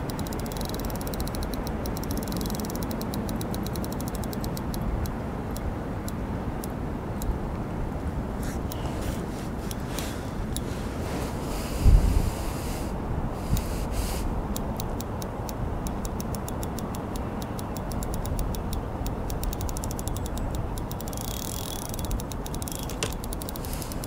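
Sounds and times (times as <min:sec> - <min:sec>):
fishing reel ticking: 0:00.0 - 0:04.9, 0:14.5 - 0:24.0
wind rumble on microphone: 0:04.6 - 0:17.2.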